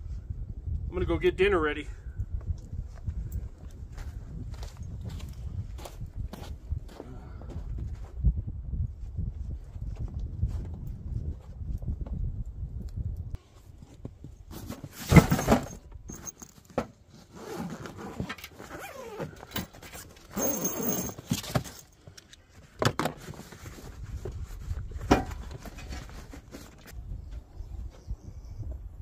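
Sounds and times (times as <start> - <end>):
packaging rustling and scraping: 22.6 - 27.0.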